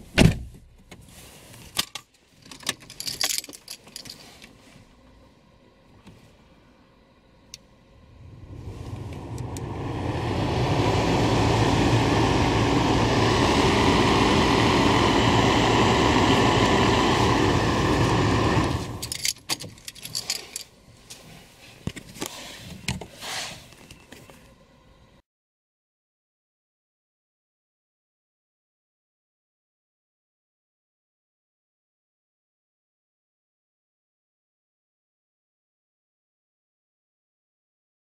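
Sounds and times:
blower fan rushing air: 7.2 - 19.2.

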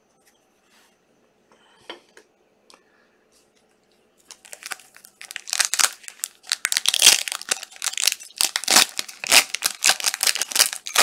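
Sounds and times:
plastic wrappers crinkling and tearing: 4.3 - 11.0.

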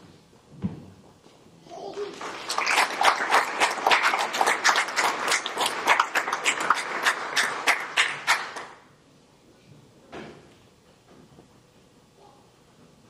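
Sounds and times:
audience applause: 1.9 - 8.8.

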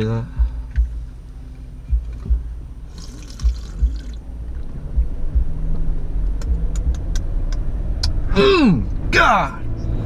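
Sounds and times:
soft low thumps: 0.0 - 8.3
drink fizzing and sloshing in can: 2.9 - 4.2.

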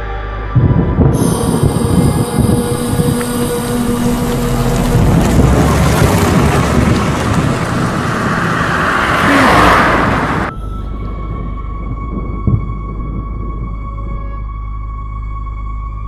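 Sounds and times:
steady humming drone: 0.0 - 16.0
car approaching: 1.2 - 13.9.

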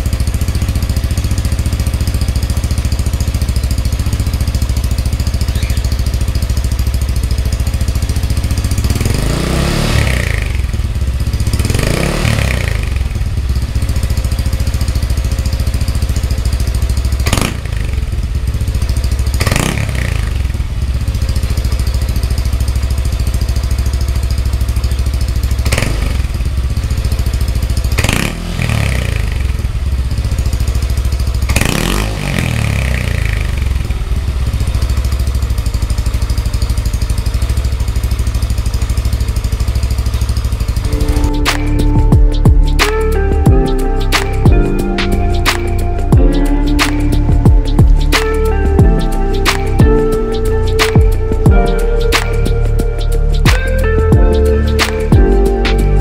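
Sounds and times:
scooter engine idling and revving: 0.0 - 56.0.

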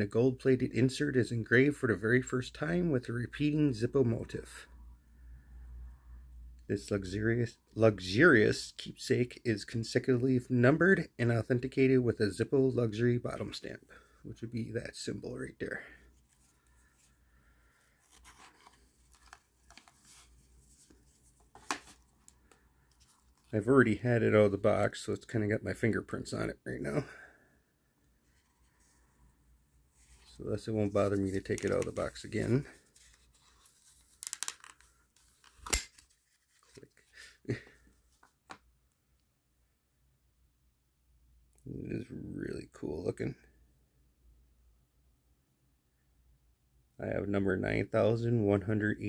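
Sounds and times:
brief handling sound: 18.0 - 23.5.

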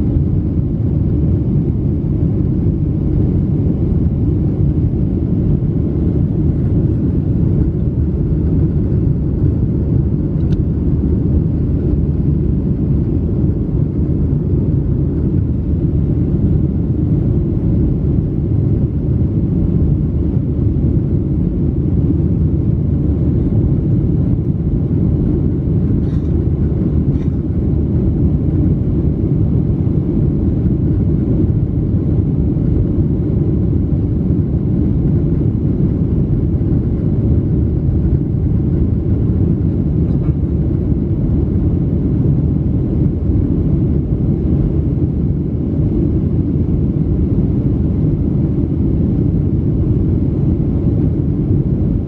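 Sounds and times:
airplane cabin roar: 0.0 - 52.0.

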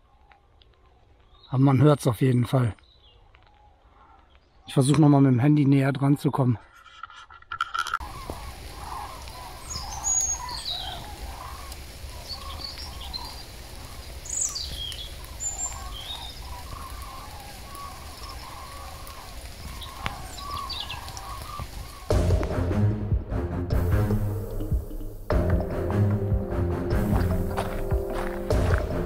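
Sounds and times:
flock of birds calling: 8.0 - 22.5, 26.1 - 29.0
background music: 22.1 - 29.0.

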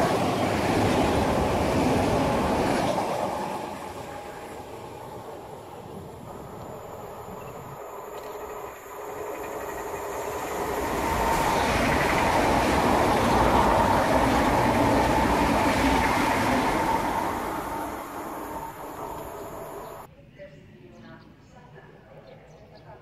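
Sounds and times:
train rushing past: 0.0 - 20.1
high whine: 6.1 - 20.1.

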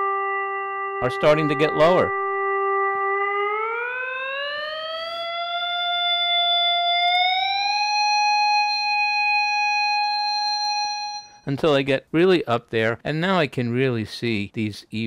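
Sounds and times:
synthesizer tone gliding up: 0.0 - 9.1.

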